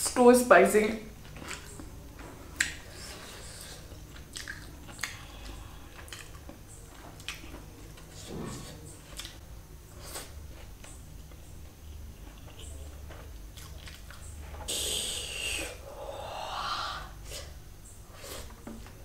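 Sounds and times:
chewing and mouth sounds: 1.2s - 1.9s, 2.5s - 9.4s, 12.2s - 14.4s
faint breathy sound: 14.7s - 18.5s
loud hissing rush: 14.7s - 18.5s.

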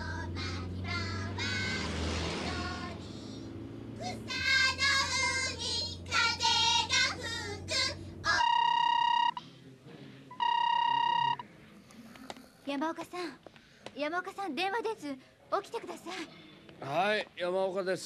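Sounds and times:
children singing together: 0.0s - 3.1s, 4.1s - 8.0s
minibus engine drone: 0.0s - 12.0s
telephone ringing: 8.3s - 9.4s, 10.3s - 11.5s.

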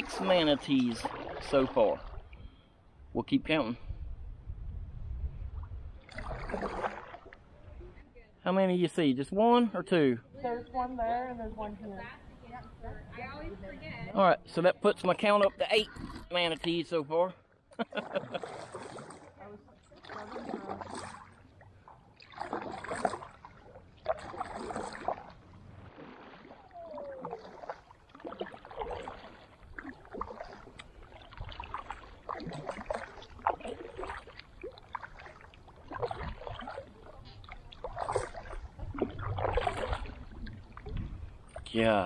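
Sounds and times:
kayak paddle splashing in water: 0.0s - 2.2s, 6.0s - 7.5s, 17.8s - 41.9s.

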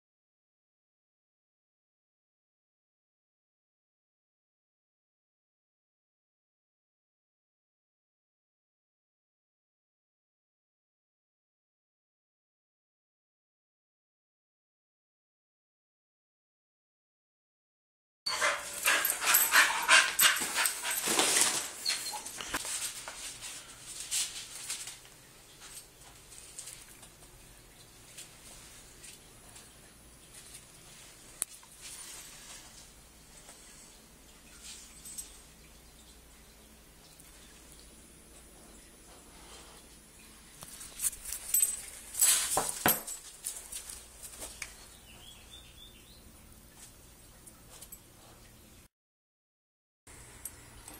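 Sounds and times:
dog panting: 18.3s - 22.6s
dogs scuffling: 18.3s - 27.2s, 40.6s - 44.9s
dog whining: 21.7s - 22.6s.

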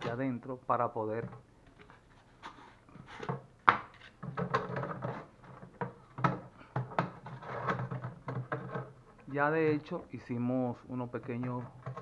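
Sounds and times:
plastic jug knocking and scraping: 1.2s - 10.0s, 11.3s - 12.0s.

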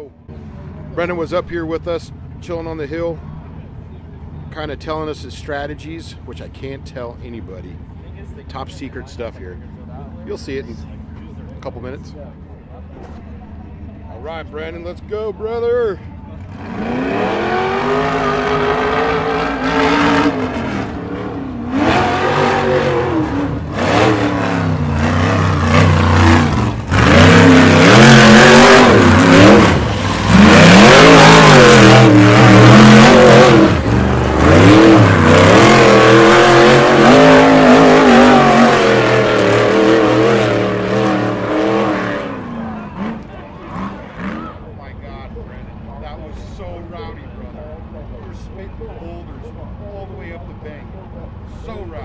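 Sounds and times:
race car engine revving hard: 16.4s - 44.7s.

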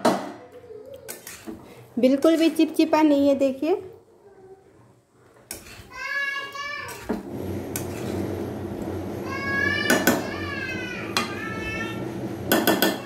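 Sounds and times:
metal spatula scraping a pan: 1.1s - 2.8s, 5.5s - 8.6s.

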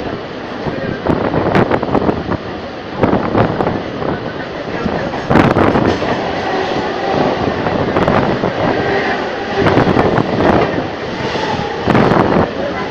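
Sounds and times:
electric train rushing: 0.0s - 12.9s
passing train: 0.0s - 12.9s
wheels clacking over rail joints: 4.6s - 12.9s.

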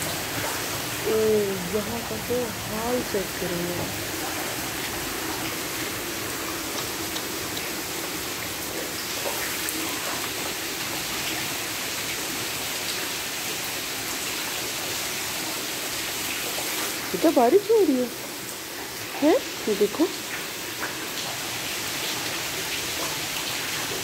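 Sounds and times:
drips ticking on surfaces: 0.0s - 12.2s
heavy rain pouring: 0.0s - 24.0s.

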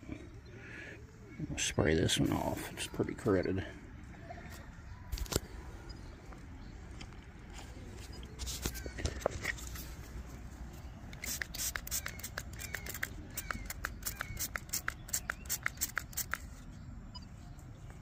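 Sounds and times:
spray bottle squirts: 11.1s - 16.5s.

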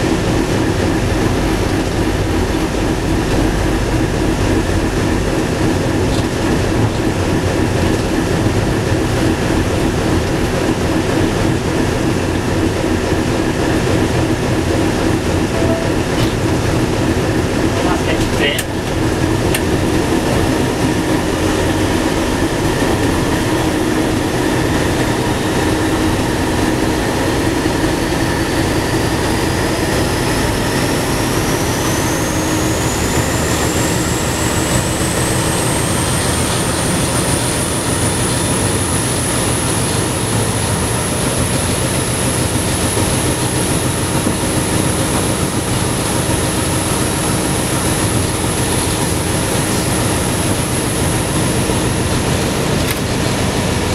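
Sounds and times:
diesel locomotive engine drone: 0.0s - 53.9s
train rail noise: 0.0s - 53.9s
high whine rising in pitch: 15.4s - 17.7s.

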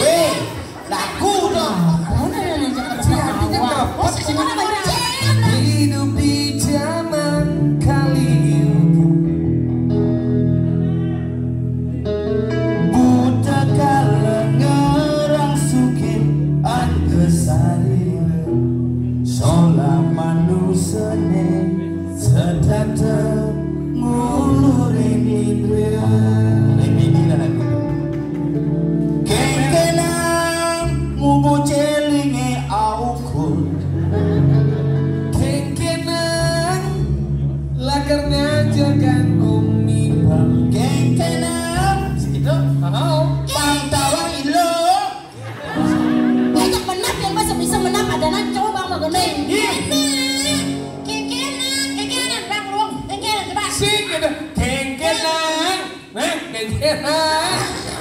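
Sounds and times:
bass line: 0.0s - 56.1s
guitar: 0.0s - 58.0s
person singing with a band: 2.3s - 9.0s, 29.2s - 37.2s
person singing: 4.4s - 28.2s, 29.1s - 53.2s.

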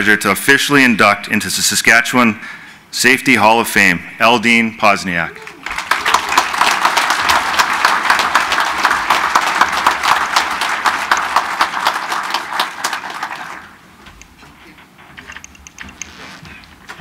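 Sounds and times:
audience applauding: 5.4s - 13.8s.

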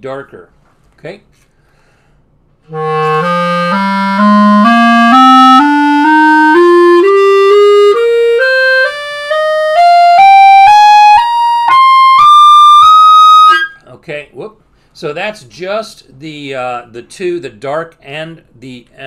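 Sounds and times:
clarinet playing a rising scale: 2.7s - 13.8s.

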